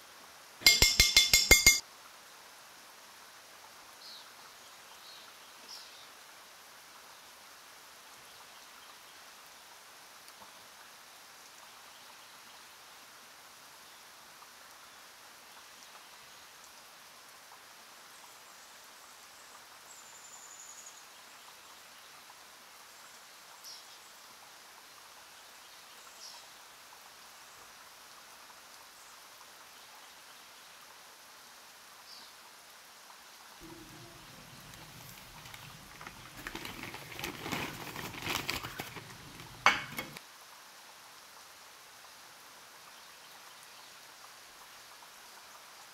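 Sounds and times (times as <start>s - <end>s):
faint steady hiss: 0.0s - 45.9s
metal spoon clicking on ceramic bowl: 0.6s - 1.8s
plastic bag crinkling: 33.6s - 40.2s.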